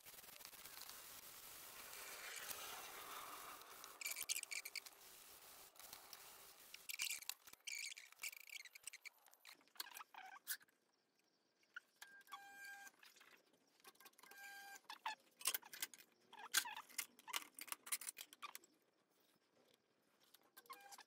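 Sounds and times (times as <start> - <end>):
rapid buzzy ticking: 0.0 - 9.1.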